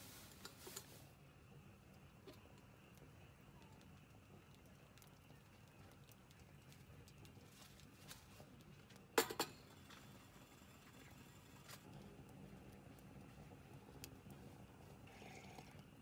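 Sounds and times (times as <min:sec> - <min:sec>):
kettle clanking on metal plate: 0:09.2 - 0:09.7.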